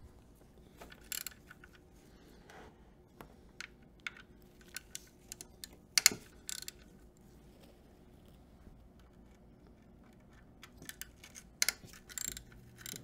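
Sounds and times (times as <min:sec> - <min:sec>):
ratchet clicking on metal: 0:01.0 - 0:01.5, 0:04.7 - 0:06.9, 0:10.8 - 0:13.0.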